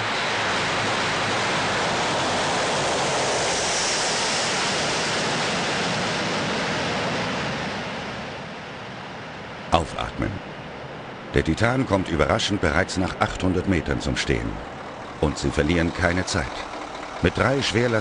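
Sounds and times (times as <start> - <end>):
turboprop engines roaring: 0.0 - 18.0.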